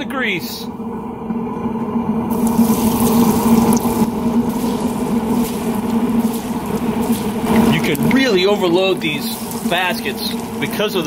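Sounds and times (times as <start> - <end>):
steady low hum: 0.0 - 11.0
fish sizzling in deep fryer: 2.2 - 11.0.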